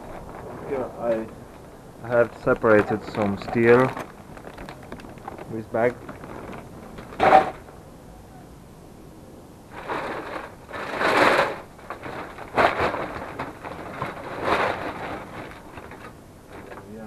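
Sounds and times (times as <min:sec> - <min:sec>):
bags rustling: 0:00.0 - 0:07.8, 0:09.7 - 0:17.0
scrap electronics clattering: 0:02.4 - 0:07.7, 0:09.7 - 0:17.0.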